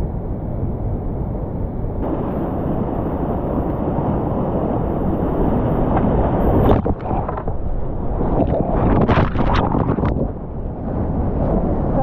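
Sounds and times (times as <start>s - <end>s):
whitewater rushing: 2.0s - 10.3s
water splashing on boat: 2.0s - 10.4s.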